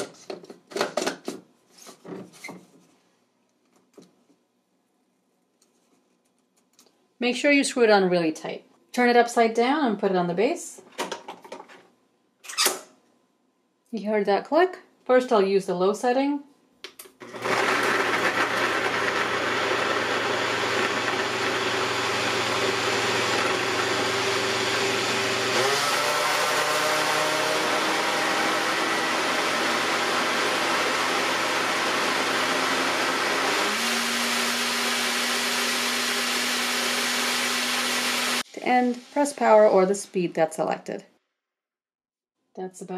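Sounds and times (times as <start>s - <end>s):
blender motor running: 17.2s - 38.5s.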